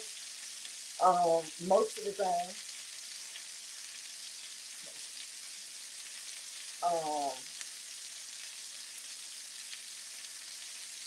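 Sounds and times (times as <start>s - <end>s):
meat sizzling in a hot pan: 0.0s - 11.0s
woman's voice: 1.0s - 2.6s, 6.8s - 7.4s.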